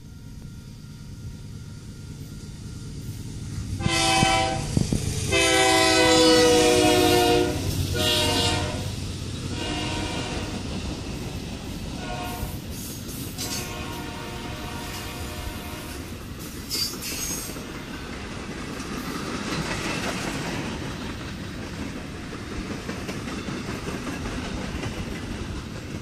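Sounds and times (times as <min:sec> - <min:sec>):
diesel locomotive rumble: 0:00.0 - 0:26.0
freight cars rolling on rails: 0:00.0 - 0:26.0
train air horn blasts: 0:03.8 - 0:10.6, 0:12.0 - 0:16.1.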